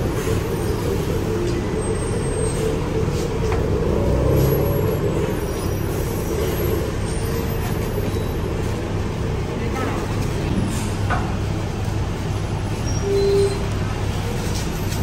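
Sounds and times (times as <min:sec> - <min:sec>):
heavy vehicle engine running: 0:00.0 - 0:15.0
road traffic noise: 0:00.0 - 0:15.0.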